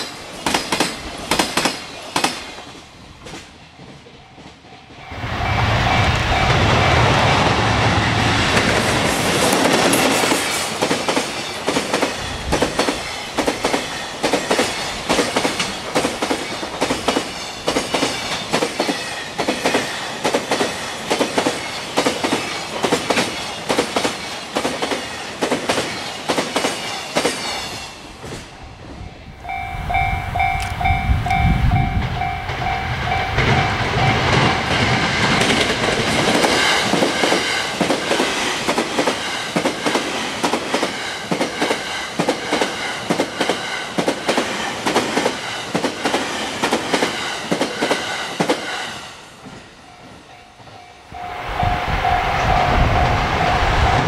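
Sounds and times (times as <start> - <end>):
train wheels clacking over rail joints: 0.0 - 4.6, 8.4 - 28.5, 30.6 - 50.8
train rumble: 0.0 - 54.0
railway crossing bell ringing: 3.8 - 8.1, 29.4 - 35.8, 49.7 - 54.0.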